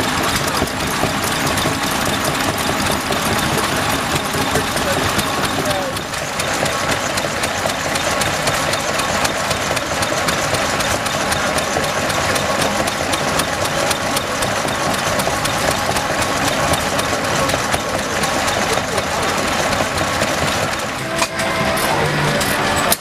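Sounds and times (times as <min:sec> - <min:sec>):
stationary engine clattering: 0:00.0 - 0:23.0.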